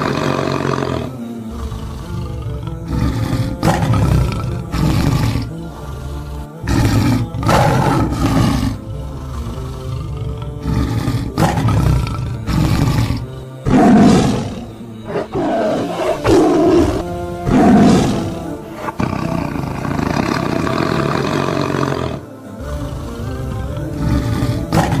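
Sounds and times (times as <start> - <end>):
background music: 0.0 - 25.0
lions roaring and growling: 0.0 - 25.0.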